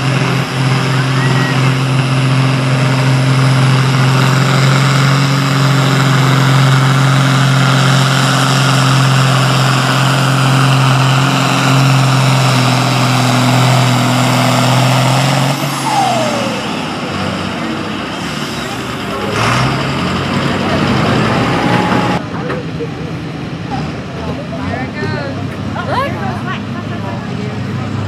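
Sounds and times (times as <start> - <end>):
tractor engine running hard: 0.0 - 28.0.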